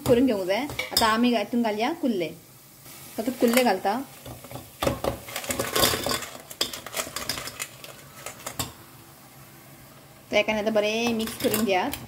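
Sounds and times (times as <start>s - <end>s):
crab shells clattering in pan: 3.5s - 8.8s, 11.1s - 12.0s.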